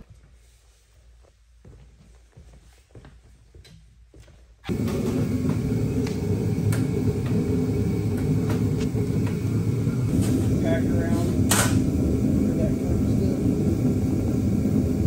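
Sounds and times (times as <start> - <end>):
forced-air heater running: 3.6 - 15.0.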